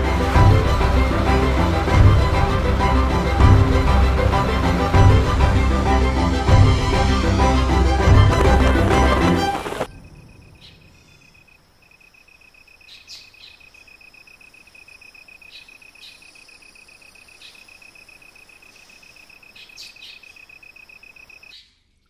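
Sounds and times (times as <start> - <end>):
cricket trilling: 9.5 - 21.6
bird chirps: 9.5 - 21.8.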